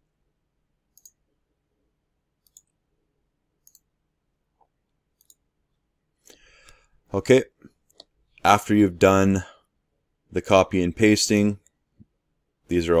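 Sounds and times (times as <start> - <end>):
computer mouse clicks: 0.9 - 1.2, 2.4 - 2.8, 3.6 - 3.9, 5.2 - 5.4.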